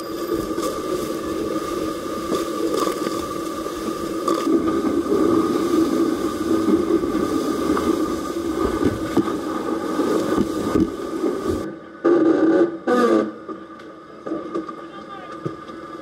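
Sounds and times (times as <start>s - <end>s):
rushing water: 0.0s - 11.7s
steady hum: 0.0s - 12.2s
wind: 0.0s - 16.0s.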